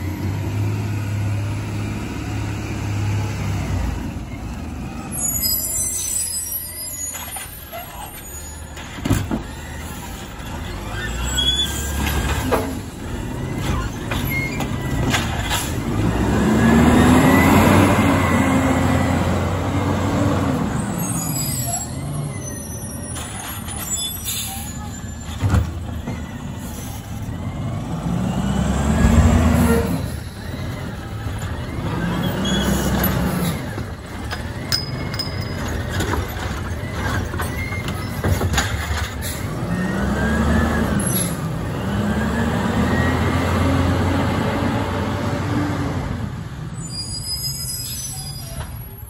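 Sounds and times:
garbage truck diesel engine revving: 9.5s - 21.3s, 25.0s - 38.4s, 39.1s - 46.6s
metal clanks and bangs: 33.6s - 39.4s.

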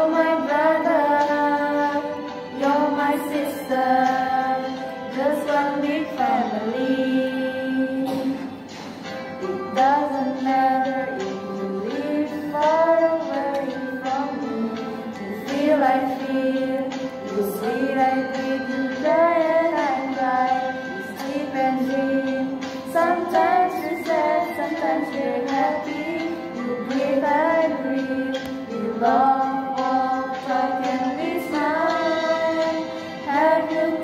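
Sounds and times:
held accompanying notes: 0.0s - 34.0s
woman singing high melody: 9.4s - 34.0s.

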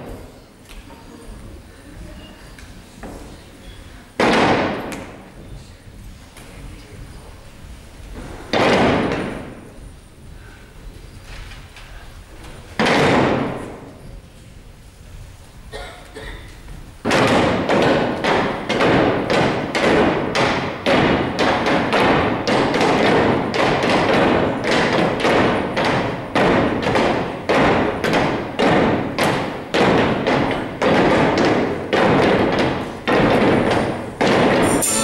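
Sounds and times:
wooden staffs thumping on floor: 4.2s - 5.2s, 8.0s - 10.4s, 12.4s - 14.0s, 17.0s - 35.0s.

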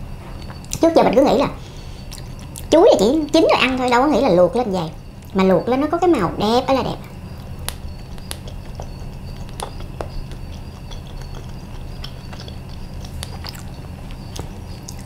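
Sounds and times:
steady low hum: 0.0s - 15.0s
wet chewing mouth clicks: 2.0s - 2.7s, 7.4s - 15.0s.

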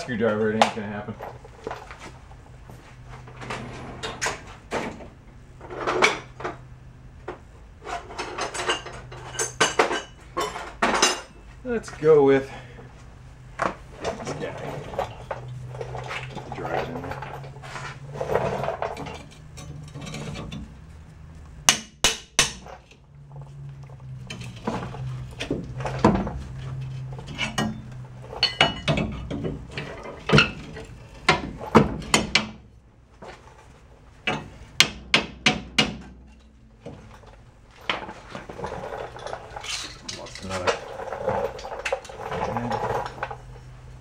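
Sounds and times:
hammer striking metal: 21.7s - 22.7s.

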